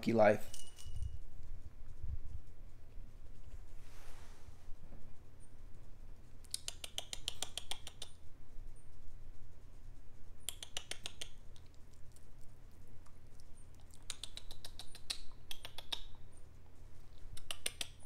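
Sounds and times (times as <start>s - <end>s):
low steady hum: 0.0s - 18.0s
rapid clicking and rattling on wire cage: 6.3s - 12.2s.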